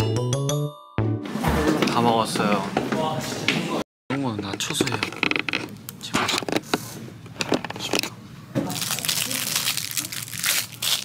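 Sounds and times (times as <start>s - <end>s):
plastic packaging crinkling: 7.8s - 11.0s.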